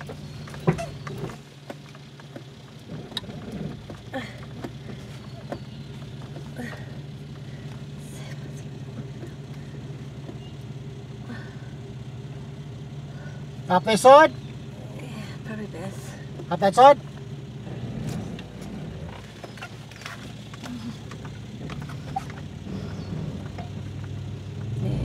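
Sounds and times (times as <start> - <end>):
knocks and rattles: 0.0 - 11.0, 16.2 - 24.8
engine idling from inside cabin: 0.0 - 25.0.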